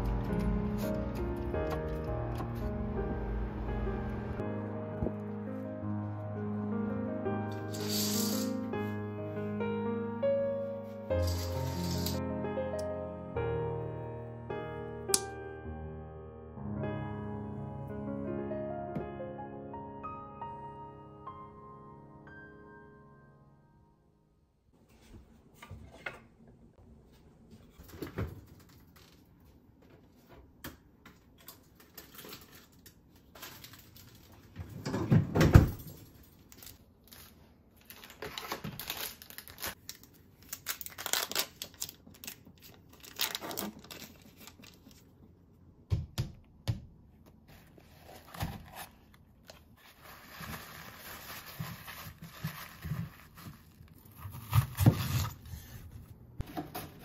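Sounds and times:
kitchen paper rustling: 0:07.6 - 0:08.7, 0:11.0 - 0:12.2, 0:31.5 - 0:34.6, 0:35.9 - 0:45.2, 0:47.5 - 0:57.0
paper packet tearing: 0:07.7 - 0:08.6, 0:11.2 - 0:12.2, 0:36.5 - 0:45.1, 0:47.5 - 0:55.5.

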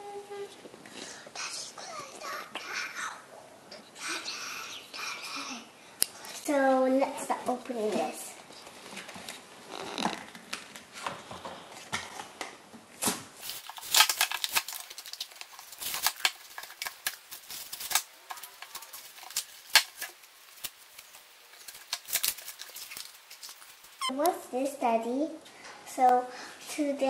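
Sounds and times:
packaging tearing and crinkling: 0:13.0 - 0:24.1.

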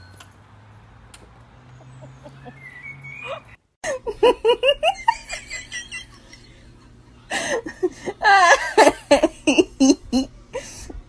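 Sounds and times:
person laughing: 0:02.0 - 0:10.8.

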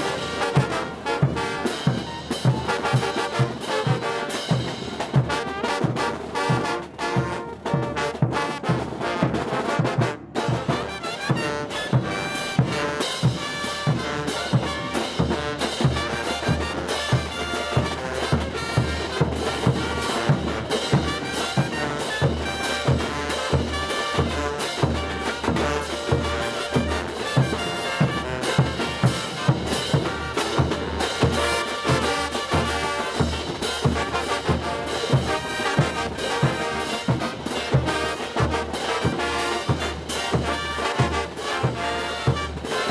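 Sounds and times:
brass band playing: 0:00.0 - 0:42.9
bass drums and crash cymbals: 0:11.9 - 0:42.9.

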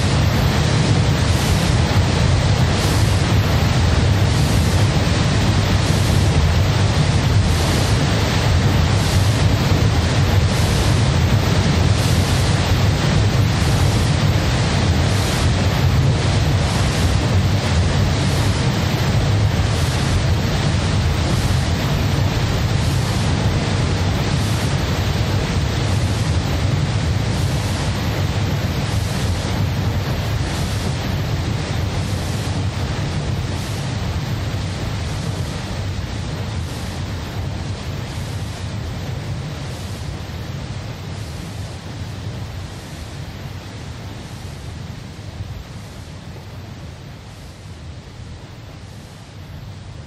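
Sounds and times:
low rumbling hissing noise: 0:00.0 - 0:50.0.

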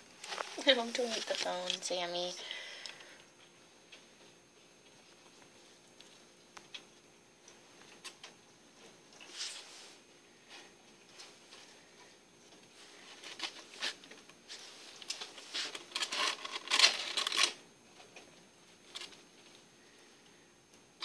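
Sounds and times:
bedding rustling: 0:12.7 - 0:17.5
rats scratching in cage: 0:12.9 - 0:17.6.

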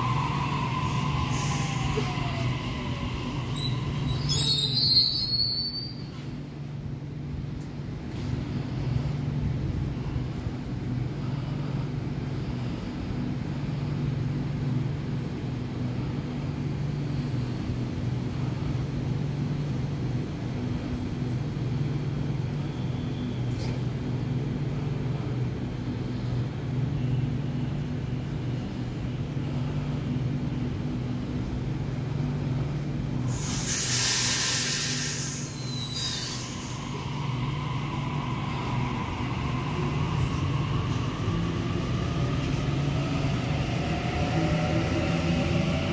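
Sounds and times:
electric train equipment humming: 0:00.0 - 0:05.2, 0:36.3 - 0:45.9
loud hiss of released air: 0:33.3 - 0:37.0.

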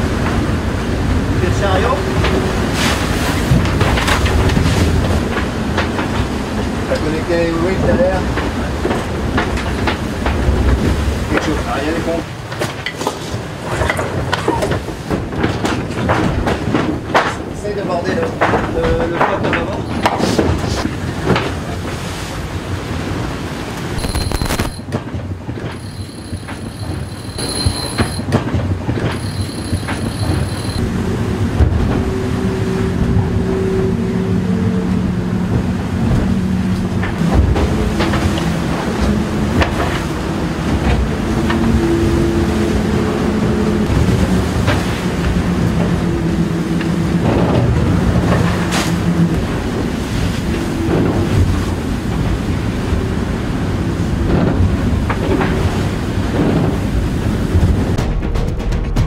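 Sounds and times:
rushing wind and water: 0:00.0 - 0:58.2
boat droning hum: 0:18.1 - 0:57.9.

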